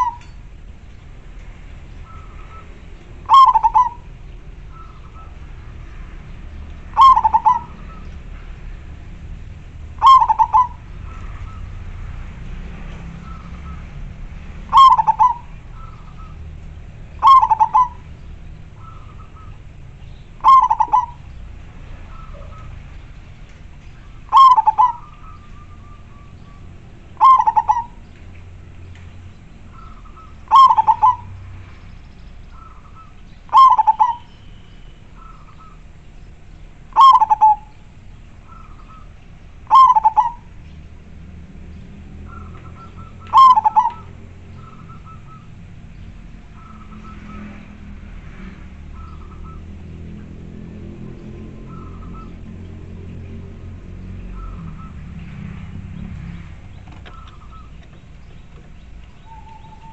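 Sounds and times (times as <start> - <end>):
dove cooing: 0.0 - 0.3, 2.0 - 5.5, 6.9 - 8.2, 9.9 - 11.8, 14.7 - 16.4, 17.2 - 19.7, 20.4 - 21.3, 24.0 - 28.2, 29.7 - 31.4, 32.5 - 34.4, 36.9 - 37.8, 38.4 - 40.6, 42.3 - 45.6, 56.4 - 59.9.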